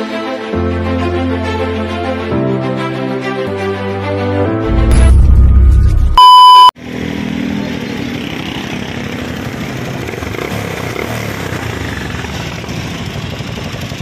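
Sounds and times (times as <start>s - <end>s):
test-tone beep: 6.2s - 6.8s
motorcycle engine idling noisily: 7.4s - 14.0s.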